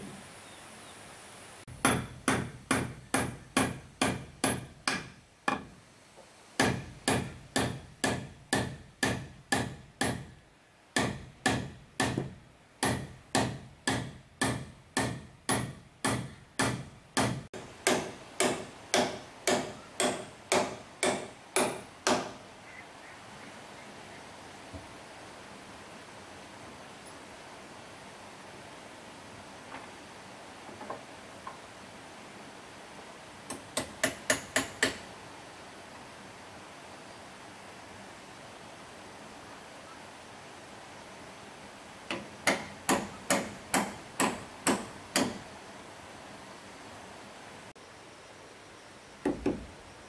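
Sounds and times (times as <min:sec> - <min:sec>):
hammer driving nails into wood: 0:01.8 - 0:05.7, 0:11.0 - 0:22.4, 0:42.1 - 0:45.4.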